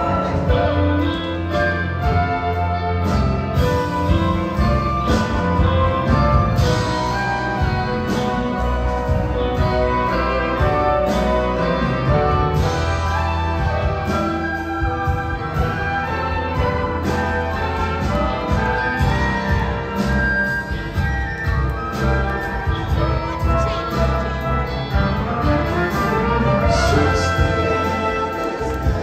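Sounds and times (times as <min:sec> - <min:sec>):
bass: 0:00.0 - 0:29.0
orchestral notes: 0:00.0 - 0:29.0
steady drum beat: 0:00.0 - 0:29.0.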